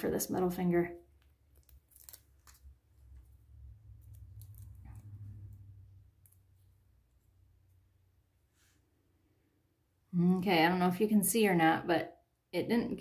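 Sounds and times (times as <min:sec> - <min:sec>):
clicks and crackle of plastic: 0:01.2 - 0:03.3.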